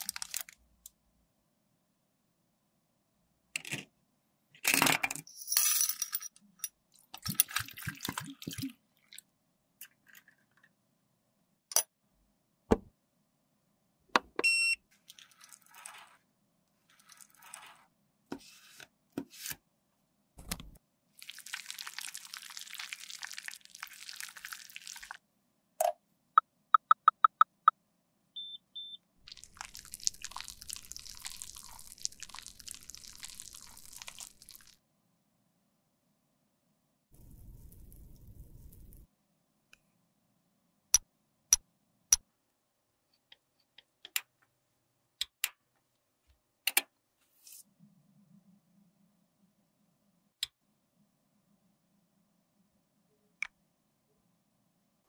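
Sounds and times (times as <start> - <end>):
short electronic beeps: 26.8 - 27.7, 28.4 - 29.0.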